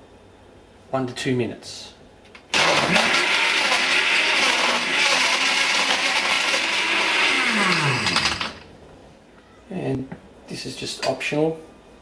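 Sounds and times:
blender running: 0:02.5 - 0:08.7.

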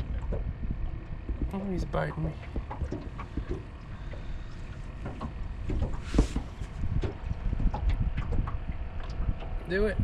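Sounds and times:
wind rumble on microphone: 0:00.0 - 0:10.0.

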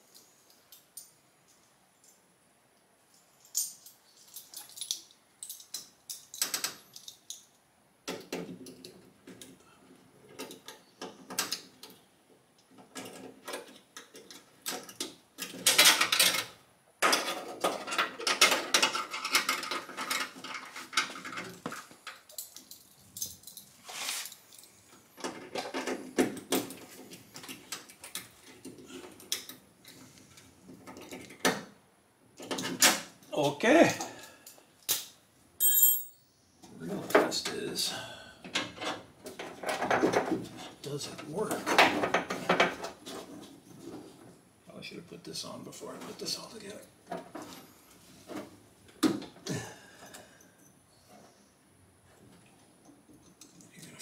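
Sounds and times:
tools and metal parts clinking: 0:03.1 - 0:07.5, 0:17.1 - 0:29.6, 0:35.6 - 0:36.2.

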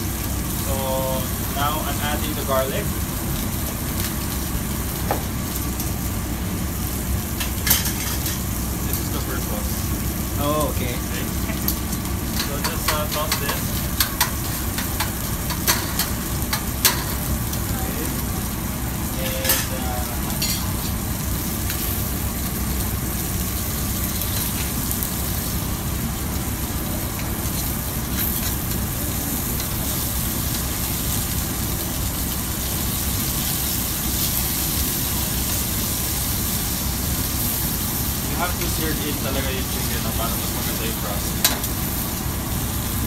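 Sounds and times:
chicken sizzling in oil: 0:00.0 - 0:43.0.

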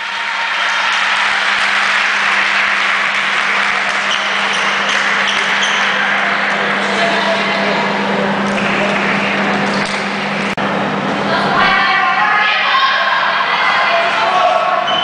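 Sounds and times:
spectators applauding: 0:00.0 - 0:10.6.

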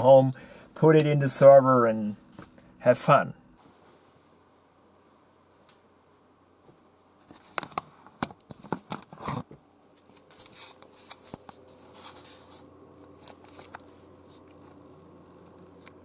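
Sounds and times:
faint steady hum: 0:00.0 - 0:16.0
handling clicks rustles and scrapes: 0:07.2 - 0:16.0.

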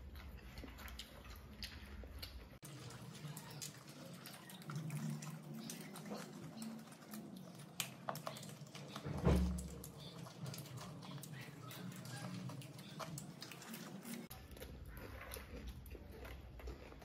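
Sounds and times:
popcorn being chewed: 0:00.0 - 0:17.0
dull thump: 0:09.1 - 0:09.7.

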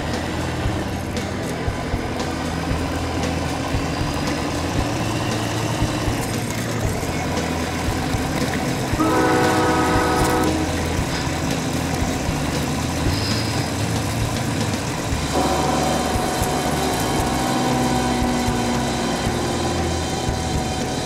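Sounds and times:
truck engine running at low revs: 0:00.0 - 0:21.0
air horn blast: 0:09.0 - 0:10.9.

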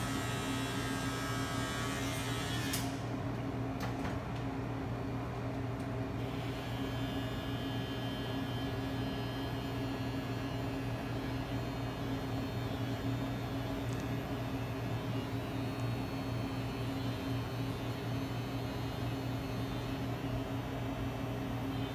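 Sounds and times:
electric hair clippers buzzing: 0:00.0 - 0:03.0, 0:06.2 - 0:20.2.

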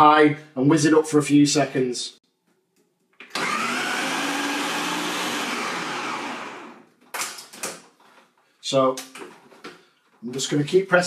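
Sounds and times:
blender chopping bread: 0:03.2 - 0:06.9.

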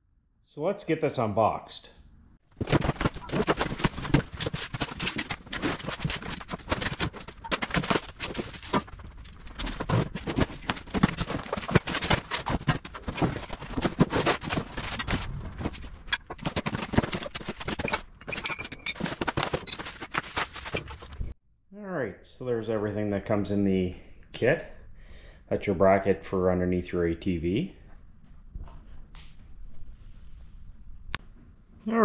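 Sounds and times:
cardboard and styrofoam rustling: 0:02.6 - 0:21.4
steel parts clattering on concrete: 0:17.2 - 0:20.1.

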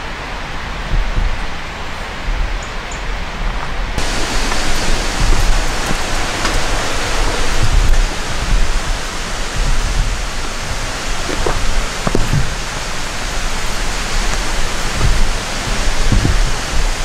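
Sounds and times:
low rumble on microphone: 0:00.8 - 0:17.0
river water rushing: 0:04.0 - 0:17.0.

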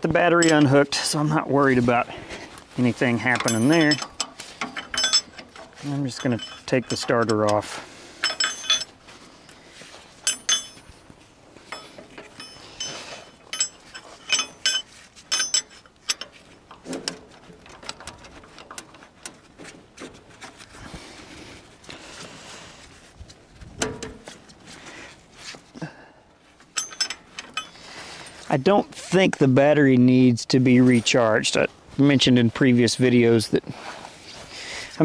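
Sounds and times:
metallic clinks of wrenches: 0:00.2 - 0:01.5, 0:02.9 - 0:21.2, 0:26.6 - 0:29.2.

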